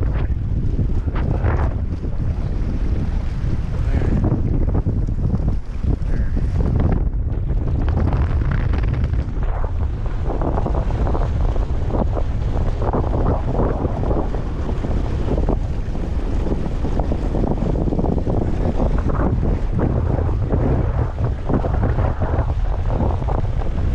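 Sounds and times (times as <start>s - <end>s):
water rushing along hull: 0.0s - 23.9s
wind buffeting microphone: 0.0s - 23.9s.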